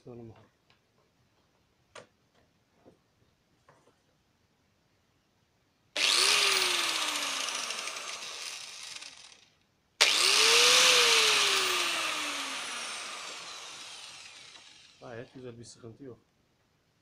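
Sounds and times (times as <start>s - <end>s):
angle grinder whining: 6.0s - 15.0s.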